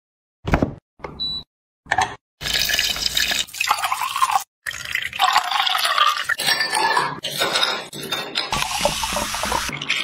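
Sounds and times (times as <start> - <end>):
liquid poured into a glass: 2.4 - 7.0.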